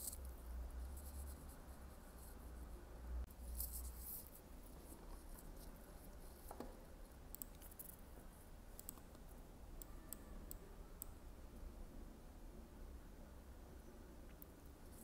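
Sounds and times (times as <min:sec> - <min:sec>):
computer mouse clicks: 0:06.0 - 0:08.1, 0:08.7 - 0:11.2.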